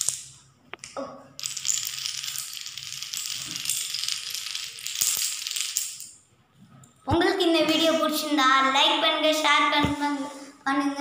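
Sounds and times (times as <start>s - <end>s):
dominoes clattering on tiles: 0.0s - 0.4s, 1.4s - 6.2s.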